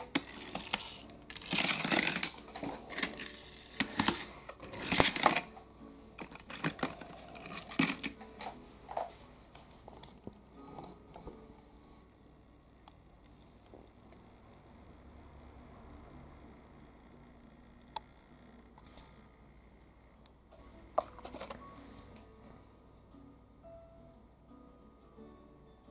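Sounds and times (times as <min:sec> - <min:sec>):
toy car clicks and knocks: 0:00.0 - 0:05.5, 0:06.2 - 0:08.2
toy car rolling on plastic: 0:00.0 - 0:05.5, 0:06.2 - 0:09.0.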